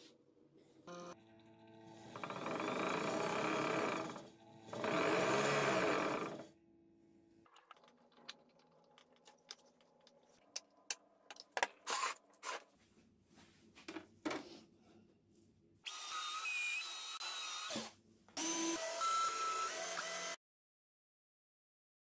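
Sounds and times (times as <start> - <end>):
cordless drill driving screws: 2.0 - 6.4, 11.8 - 12.6, 15.9 - 20.4.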